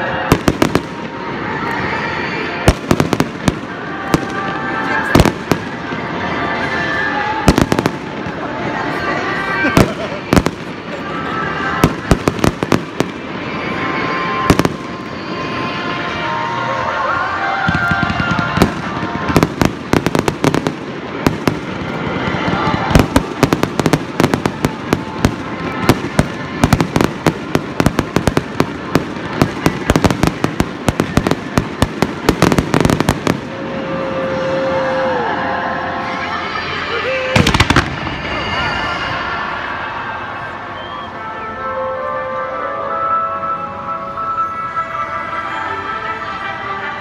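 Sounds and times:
fireworks crackling: 0.0 - 35.1, 36.0 - 39.2
whistle-like tone: 38.0 - 41.6.

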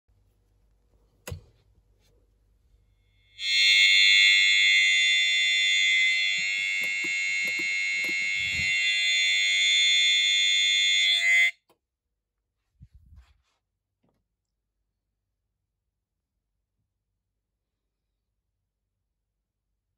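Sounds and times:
high-pitched alarm tone: 3.4 - 11.6.

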